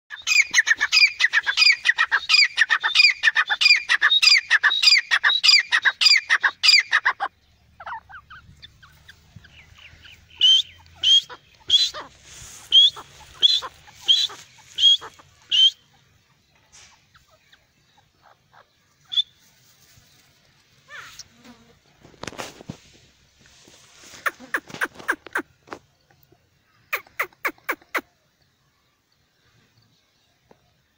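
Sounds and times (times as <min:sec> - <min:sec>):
bird calling ringing notes: 0:00.1 - 0:16.1.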